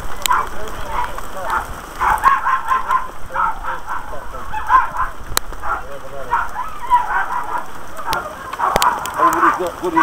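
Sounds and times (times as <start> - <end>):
muffled voices talking: 0.1 - 10.0.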